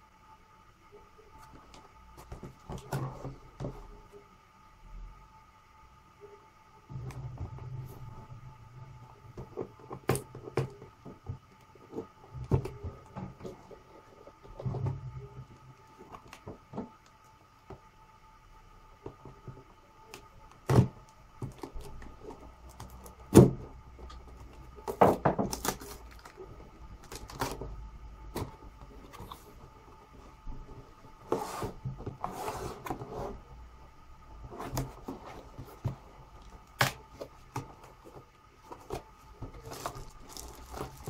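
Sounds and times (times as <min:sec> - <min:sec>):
faint steady hum: 0:00.0 - 0:41.0
cardboard and plastic crinkling: 0:20.6 - 0:29.6, 0:34.5 - 0:41.0.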